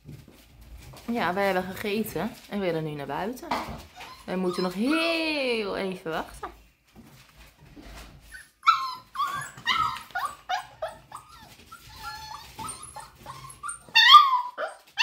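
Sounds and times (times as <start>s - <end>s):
puppies whining and yipping: 3.8s - 5.3s, 8.2s - 15.0s.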